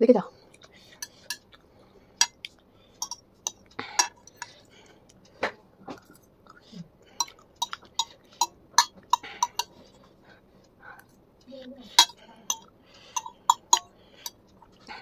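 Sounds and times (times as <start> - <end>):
metal fork clinking on a plate: 3.0 - 4.6, 7.2 - 9.8, 11.9 - 14.4.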